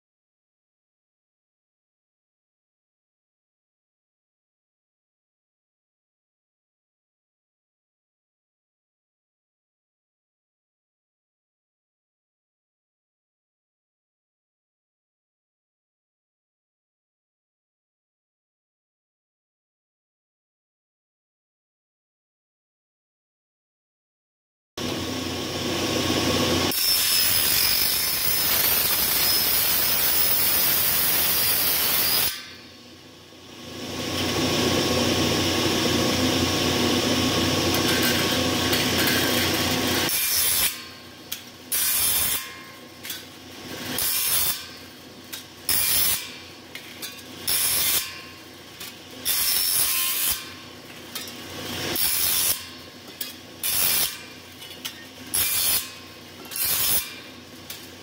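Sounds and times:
table saw cutting aluminium: 24.8s - 58.0s.

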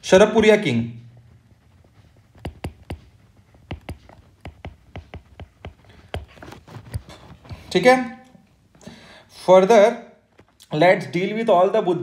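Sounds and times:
stylus tapping on tablet screen: 2.1s - 7.6s.

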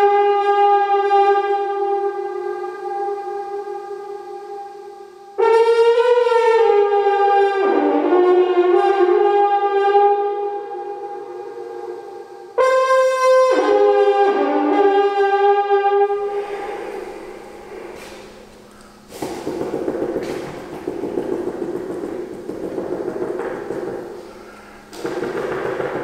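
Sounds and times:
horn notes: 0.0s - 26.0s.

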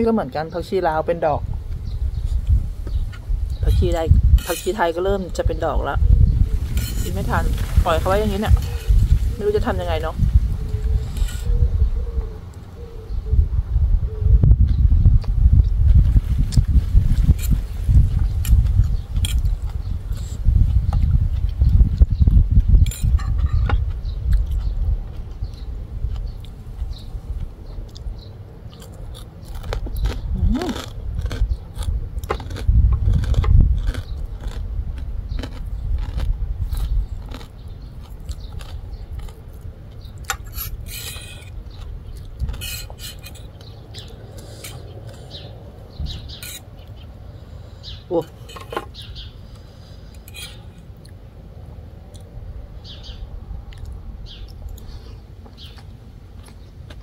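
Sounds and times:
crunchy food being chewed: 14.7s - 45.6s, 53.7s - 57.0s.

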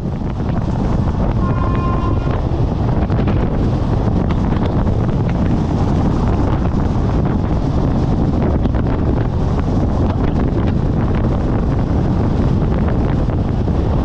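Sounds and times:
train rumbling: 0.0s - 14.0s
wind buffeting microphone: 0.0s - 14.0s
brief high tone: 1.4s - 2.4s.

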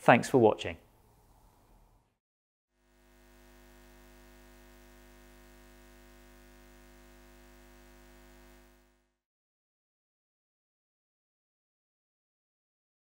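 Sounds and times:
faint steady hum: 2.8s - 9.2s.

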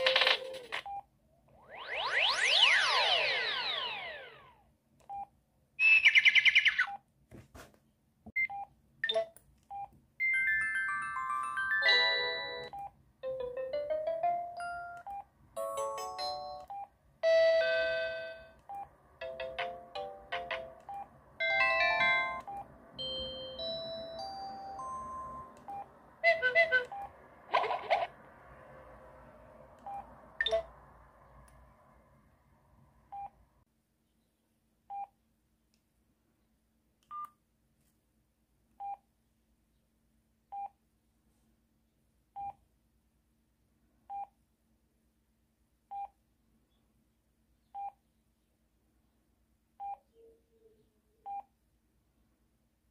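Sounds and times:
phone keypad beeps: 29.9s - 30.7s.

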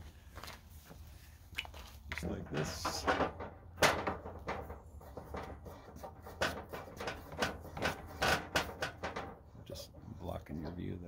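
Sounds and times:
gas cylinder scraping and clicking: 4.1s - 10.8s.

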